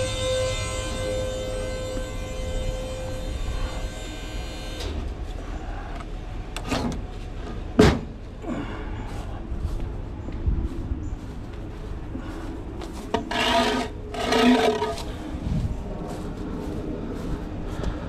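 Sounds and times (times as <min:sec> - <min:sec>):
wooden beam dragged on steel: 0:13.1 - 0:15.3.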